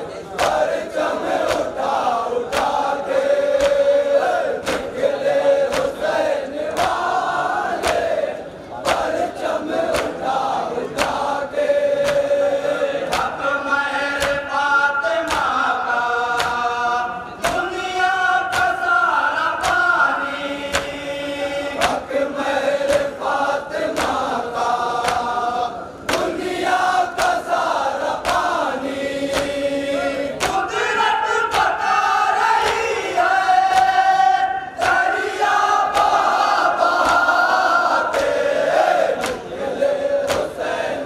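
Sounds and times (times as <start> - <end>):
men chanting: 0.0 - 41.0
chest-beating slaps: 0.3 - 4.0, 4.6 - 5.1, 5.7 - 6.1, 6.7 - 7.2, 7.8 - 8.1, 8.8 - 9.2, 9.8 - 11.3, 12.0 - 12.4, 13.0 - 13.4, 14.1 - 14.5, 15.2 - 15.6, 16.4 - 16.6, 17.4 - 17.8, 18.5 - 18.9, 19.6 - 19.9, 20.7 - 21.0, 22.8 - 23.2, 23.8 - 24.3, 25.0 - 25.3, 26.0 - 26.5, 27.2 - 28.6, 29.3 - 30.7, 31.5 - 31.8, 32.6 - 32.9, 38.1 - 38.4, 39.2 - 39.6, 40.2 - 40.6.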